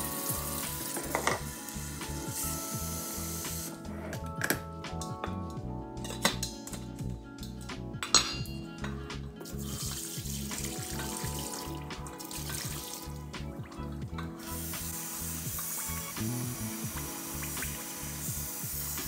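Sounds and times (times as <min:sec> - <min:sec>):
background music: 0:00.0 - 0:19.0
metal clinks from pot: 0:08.0 - 0:09.0
water pouring into steel sink: 0:09.4 - 0:13.4, 0:14.4 - 0:19.0.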